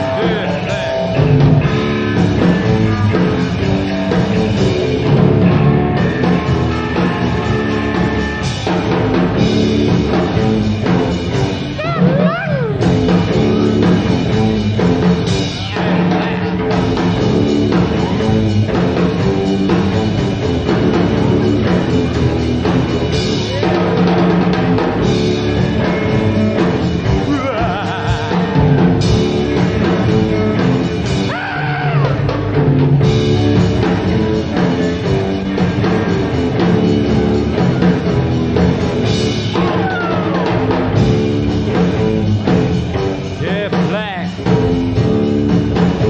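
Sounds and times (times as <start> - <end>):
lead guitar bending notes: 0.0 - 31.3
rock band playing: 0.0 - 46.0.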